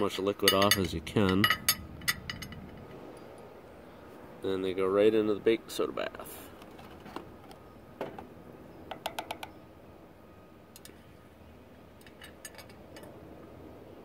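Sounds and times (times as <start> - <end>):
wire hook tapping metal and glass: 0.4 - 3.4.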